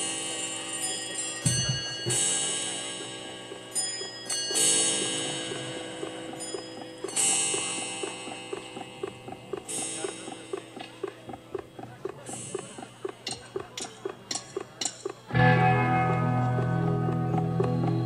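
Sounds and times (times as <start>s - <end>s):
cymbals ringing: 0.0s - 8.8s
steady ticking pulse: 0.0s - 18.0s.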